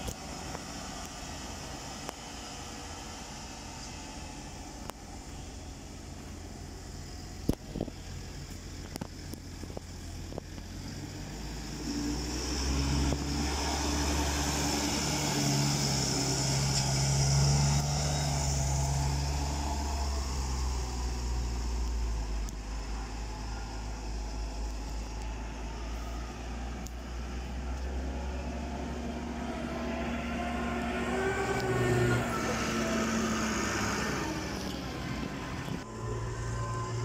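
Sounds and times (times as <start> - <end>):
tractor diesel engines running: 0.0 - 37.0.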